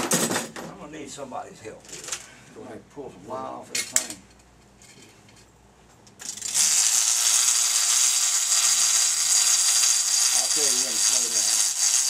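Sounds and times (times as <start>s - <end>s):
fishing reel buzzing: 6.3s - 12.0s.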